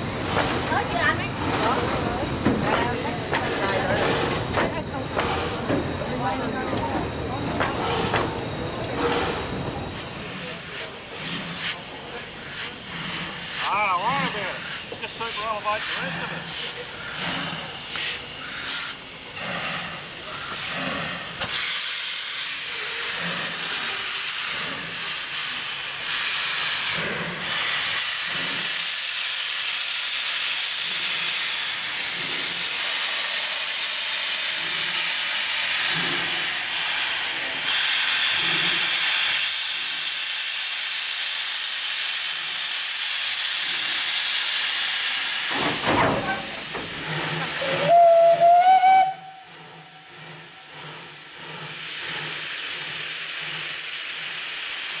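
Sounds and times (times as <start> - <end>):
steam locomotive hissing: 0.0 - 55.0.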